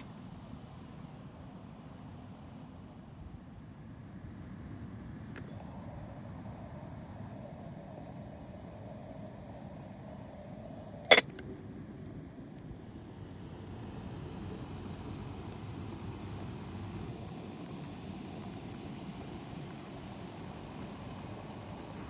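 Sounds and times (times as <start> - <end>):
sharp metal clank: 11.1 - 11.4.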